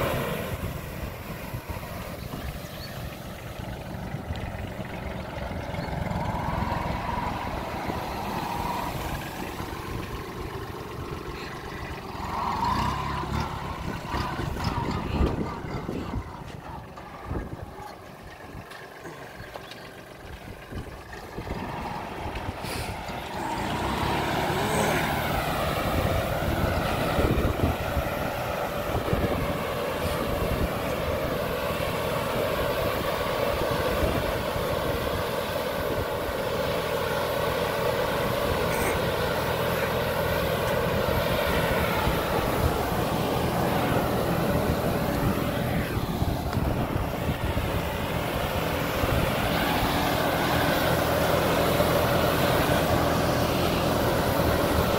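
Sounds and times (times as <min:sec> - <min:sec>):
sprayer fan whirring: 0:00.0 - 0:54.9
tractor diesel engine under load: 0:00.0 - 0:54.9.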